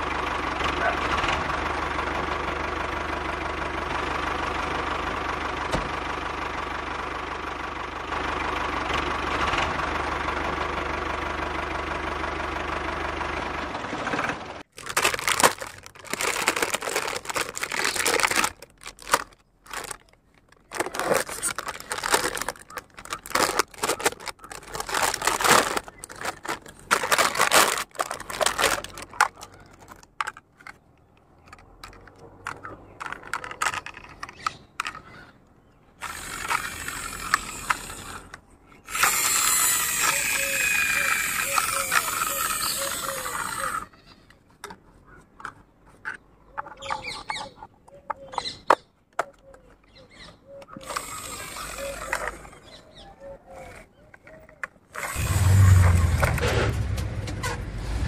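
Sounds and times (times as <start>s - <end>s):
engine-like drone: 0.0s - 46.2s, 50.2s - 58.0s
plastic bag crinkling: 14.7s - 30.8s, 54.9s - 56.4s.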